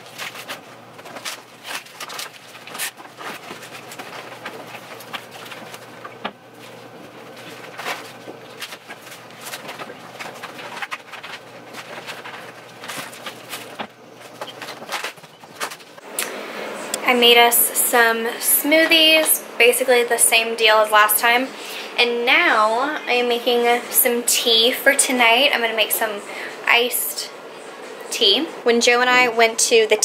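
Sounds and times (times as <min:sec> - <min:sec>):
bag and packaging rustling: 0:00.0 - 0:16.1.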